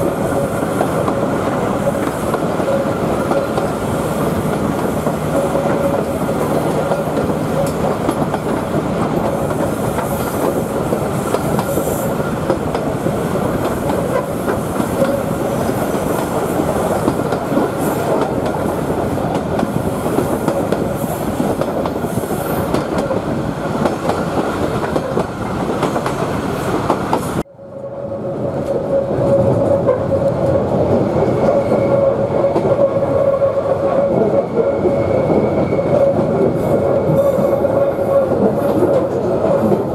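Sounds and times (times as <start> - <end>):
train wheels running on rails: 0.0 - 39.9
train wheel squeal: 0.1 - 23.3, 27.1 - 39.8.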